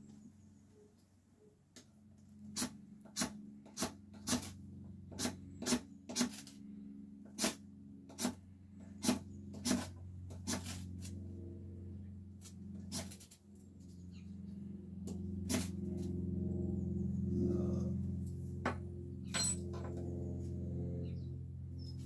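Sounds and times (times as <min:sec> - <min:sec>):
knife shaving wood: 0:02.6 - 0:06.6, 0:07.3 - 0:11.2, 0:12.4 - 0:13.4.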